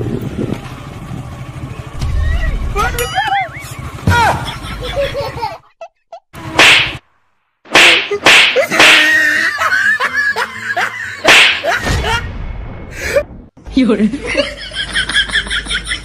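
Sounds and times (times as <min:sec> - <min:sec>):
sharp swishing smacks: 0:06.6 - 0:07.0, 0:07.7 - 0:09.2, 0:11.2 - 0:11.8.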